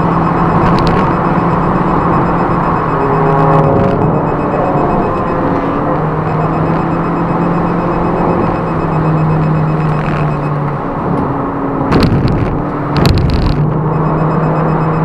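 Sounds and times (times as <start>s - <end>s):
car engine droning: 0.0s - 15.0s.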